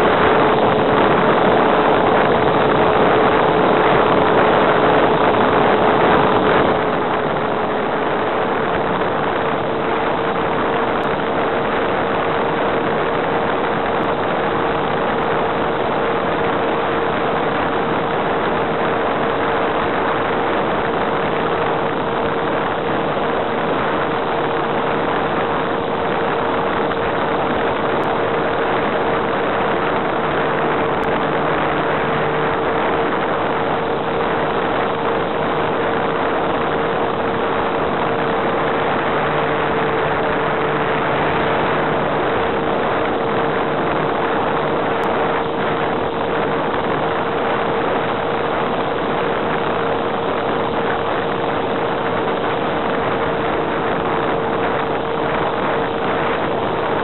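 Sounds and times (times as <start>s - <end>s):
electric motor and propeller drone: 0.0s - 57.0s
wind rushing: 0.0s - 57.0s.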